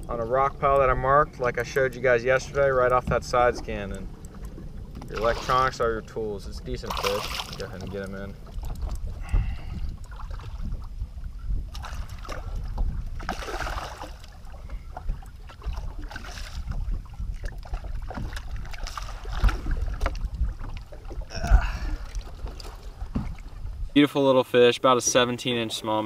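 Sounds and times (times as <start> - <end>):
water splashing: 0.0 - 11.0, 11.6 - 23.8
wind rumble on microphone: 0.0 - 24.0.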